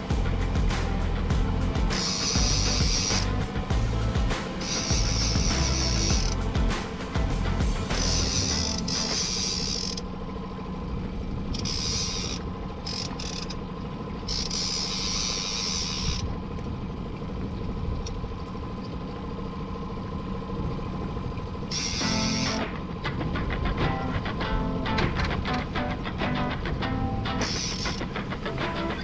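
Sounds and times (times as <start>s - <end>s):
outboard motor humming: 0.0s - 29.0s
fishing reel whirring: 1.9s - 6.5s, 7.8s - 10.1s, 11.5s - 16.4s, 21.7s - 22.6s, 27.4s - 28.2s.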